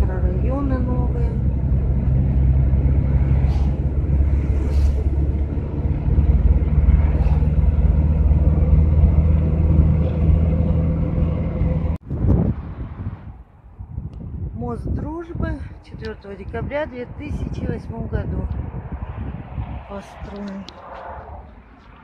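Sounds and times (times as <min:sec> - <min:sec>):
van engine and road rumble: 0:00.0 - 0:22.0
wind on microphone: 0:00.0 - 0:22.0.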